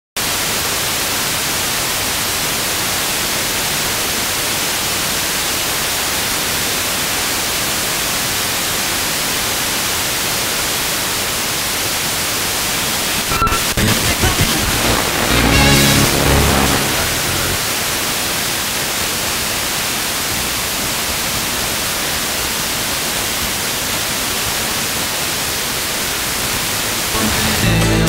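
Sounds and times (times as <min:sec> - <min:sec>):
radio static hiss: 0:11.2 - 0:20.2
choppy radio station fragments: 0:12.8 - 0:17.8.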